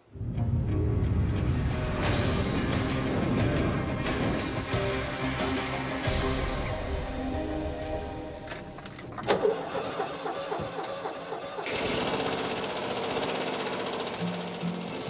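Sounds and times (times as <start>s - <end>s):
starter motor cranking: 8.8s - 15.0s.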